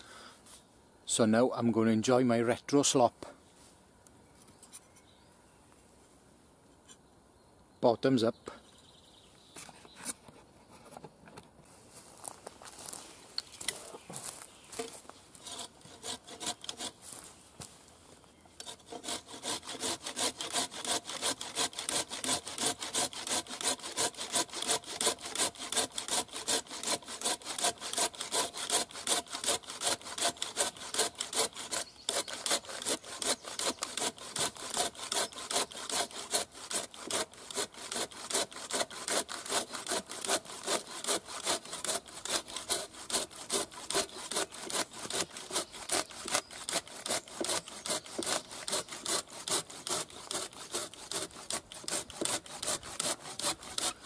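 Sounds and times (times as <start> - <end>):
hand saw cutting through log: 14.8 - 17.2, 18.6 - 54.0.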